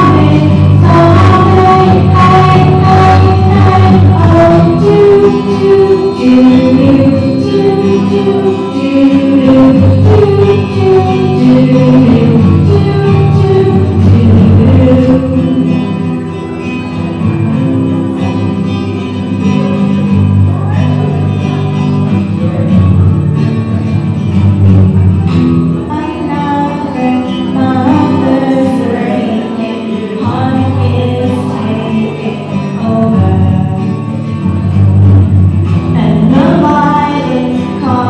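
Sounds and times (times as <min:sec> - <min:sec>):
person singing: 0:00.0 - 0:16.9, 0:25.2 - 0:34.2, 0:35.8 - 0:38.0
strummed acoustic guitar: 0:00.0 - 0:38.0.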